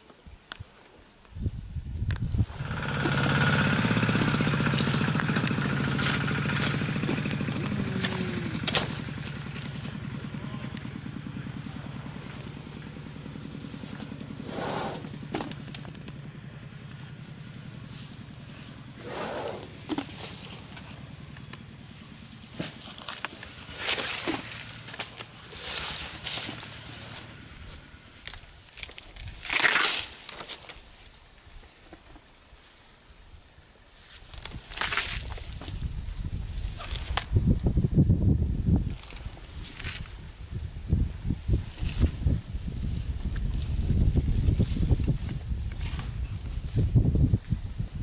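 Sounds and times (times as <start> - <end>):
low throbbing hum: 2.4 - 14.4.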